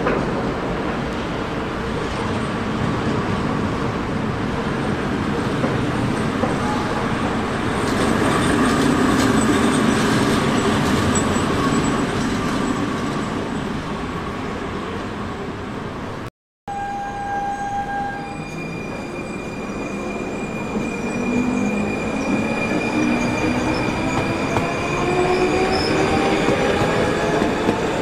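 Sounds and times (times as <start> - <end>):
locomotive wheels rumbling on rail: 0.0 - 16.2, 18.2 - 28.0
high wheel squeal: 16.7 - 27.4.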